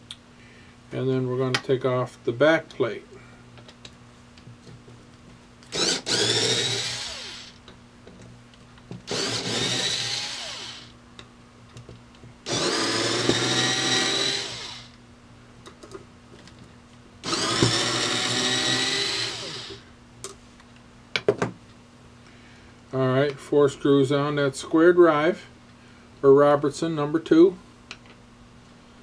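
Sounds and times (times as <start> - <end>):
electric screwdriver whining: 5.7 - 7.6, 9.1 - 10.9, 12.5 - 15.0, 17.2 - 19.8.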